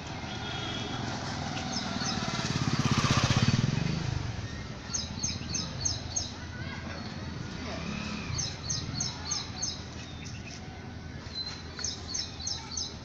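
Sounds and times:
motor vehicle driving past: 0.0 - 6.3, 7.0 - 10.4.

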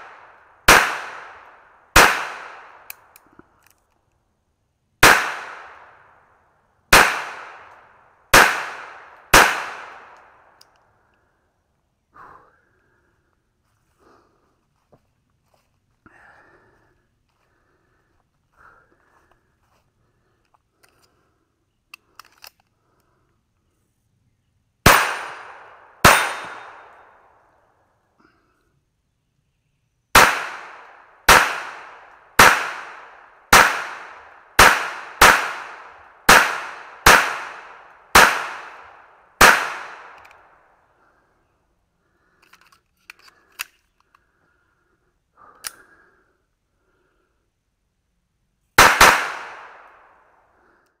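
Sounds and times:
pistol shots: 0.0 - 3.0, 5.0 - 6.0, 6.9 - 10.5, 24.8 - 27.2, 30.2 - 40.5, 48.8 - 50.1
gun handling clicks: 2.8 - 4.3, 10.1 - 11.2, 20.4 - 21.2, 21.9 - 23.2, 40.0 - 40.4, 42.2 - 44.4, 45.6 - 45.9.

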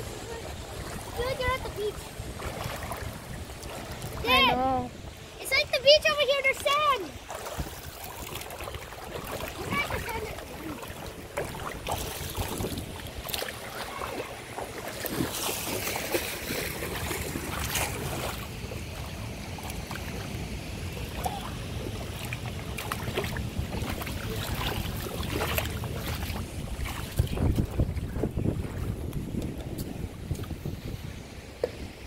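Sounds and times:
wind rumbling on microphone: 0.0 - 5.4, 7.2 - 32.0
shallow water washing: 0.0 - 32.0
water splashing: 0.0 - 32.0.

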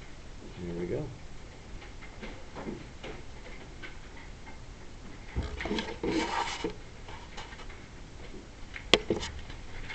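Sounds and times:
faint room noise: 0.0 - 9.9
rubbing and knocking: 5.3 - 7.7.

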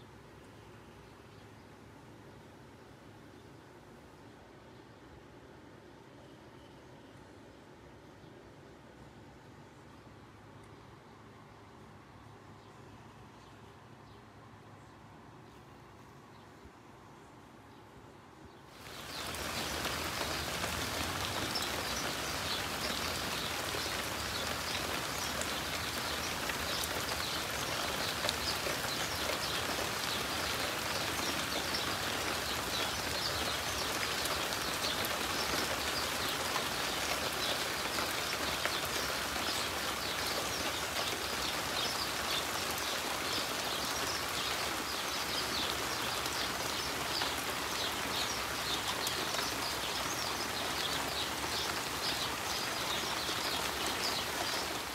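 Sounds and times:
steady rain on wet surfaces: 18.7 - 54.9.

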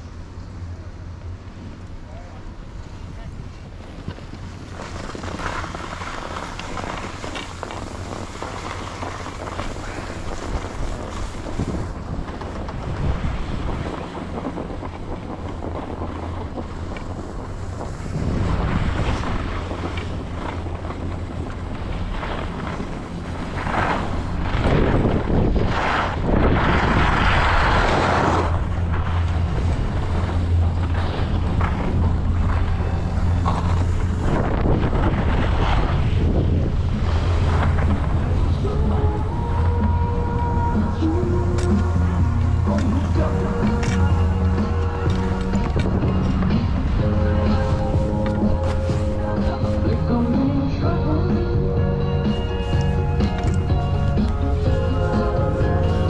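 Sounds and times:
wind buffeting microphone: 2.5 - 56.0
edges rasping over packed snow: 3.9 - 36.3.

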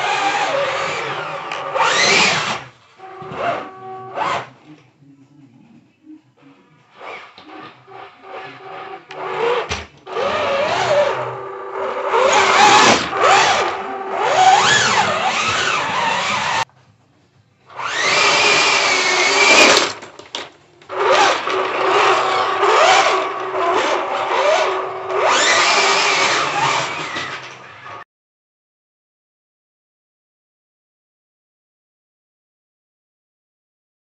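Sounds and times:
rc tank electric motors whining: 0.0 - 4.5, 7.0 - 16.6, 17.8 - 20.0, 20.9 - 28.0.

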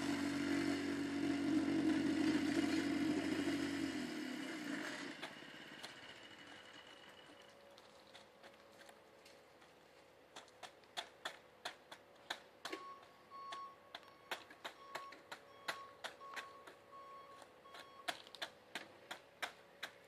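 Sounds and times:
sharp clicks and taps: 10.3 - 16.8, 17.4 - 20.0
short high beeps: 12.8 - 18.1.

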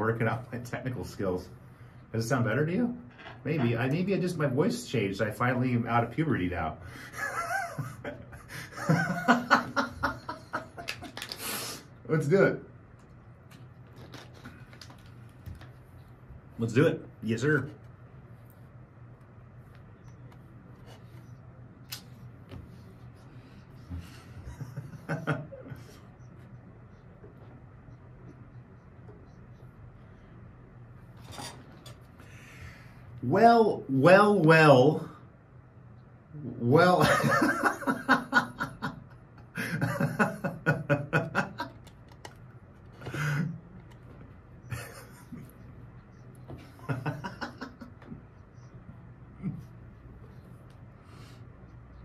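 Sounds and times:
man laughing: 7.1 - 11.2, 24.3 - 26.0, 37.0 - 41.8, 44.7 - 45.5, 46.6 - 48.2.

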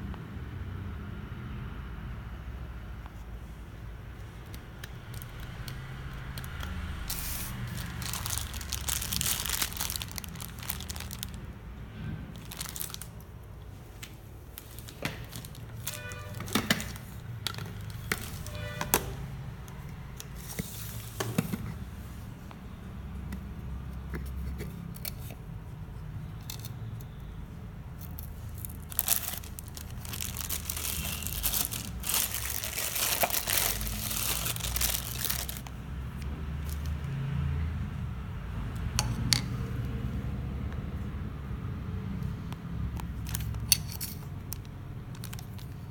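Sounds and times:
plastic packaging crinkling: 4.4 - 11.6, 12.3 - 19.2, 28.0 - 35.8, 43.2 - 45.9
hard plastic clicks and squeaks: 26.2 - 27.4.

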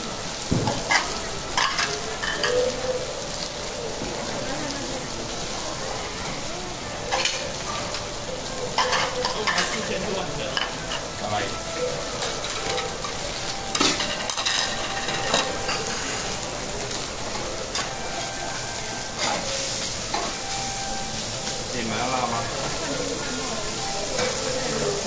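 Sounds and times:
cabbage sizzling on a griddle: 0.0 - 25.0
spatulas clacking on metal plate: 8.8 - 9.9, 13.7 - 15.9.

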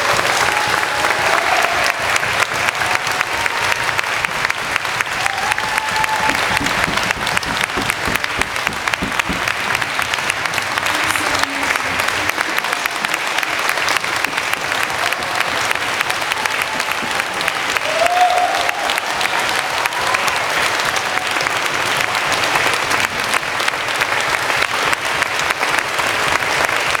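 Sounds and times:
audience applauding: 0.0 - 27.0
rising whoop: 5.1 - 6.6, 17.8 - 21.2.

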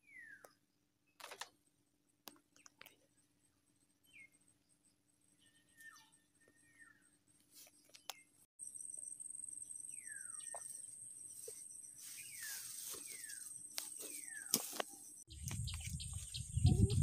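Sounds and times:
high-pitched insect trill: 8.6 - 16.9.

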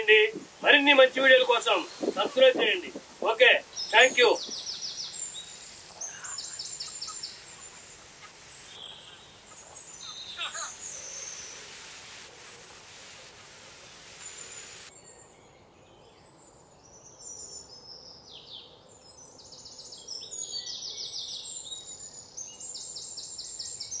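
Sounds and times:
small birds chirping: 0.0 - 13.0
outdoor hiss: 0.0 - 14.9.

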